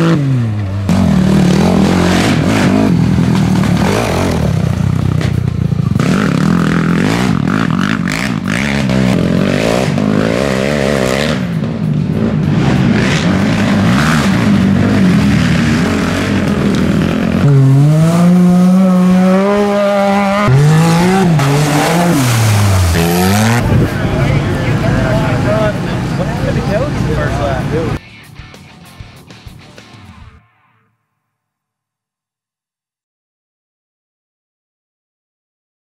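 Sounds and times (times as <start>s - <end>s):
off-road engines revving: 0.0s - 28.0s.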